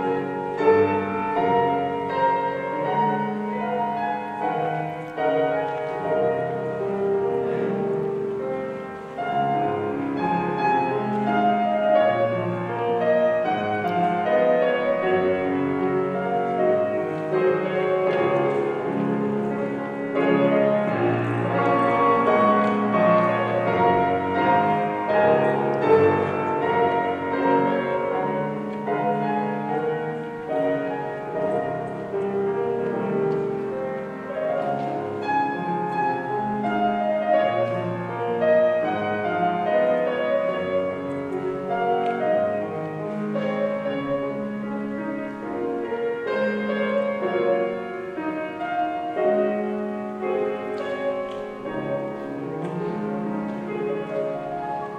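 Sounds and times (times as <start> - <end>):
grand piano playing: 0.0 - 54.9.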